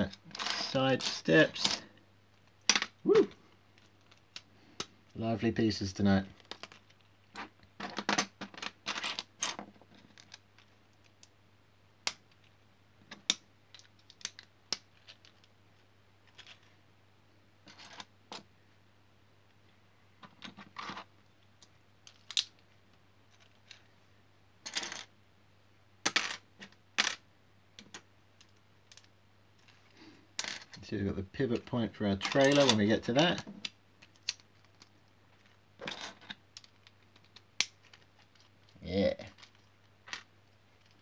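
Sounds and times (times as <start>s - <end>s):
plastic bricks clicking and clattering: 6.4s - 11.3s, 20.2s - 22.6s, 31.6s - 41.0s.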